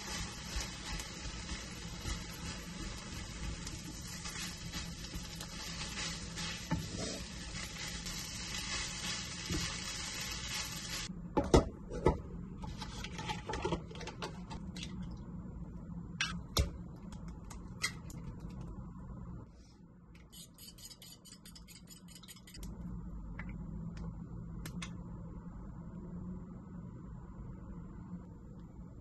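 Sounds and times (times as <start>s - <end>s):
fried rice sizzling in a pan: 0.0s - 11.1s.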